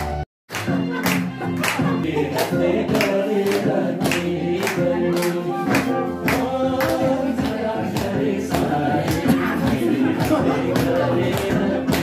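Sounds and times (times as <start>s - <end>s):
song with singing over a beat: 0.5s - 12.0s.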